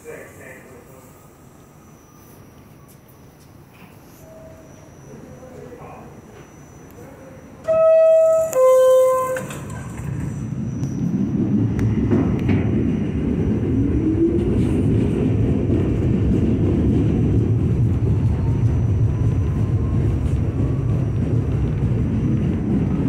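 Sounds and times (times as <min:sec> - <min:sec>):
train rumble: 0:07.6 - 0:23.0.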